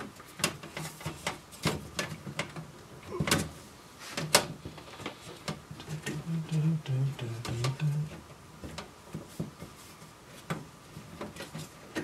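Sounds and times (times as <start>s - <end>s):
sheet metal and plastic clicking: 0.0s - 3.5s.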